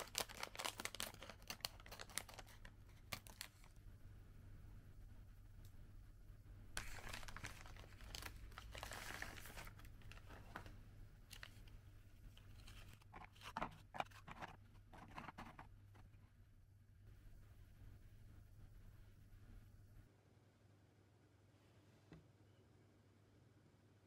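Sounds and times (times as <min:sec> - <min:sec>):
foil snack bag crinkling: 0:00.0 - 0:03.8, 0:06.8 - 0:11.7.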